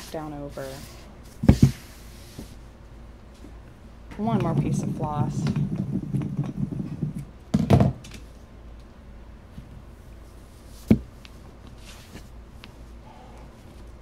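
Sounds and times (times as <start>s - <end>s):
thump on table: 1.4s - 1.8s.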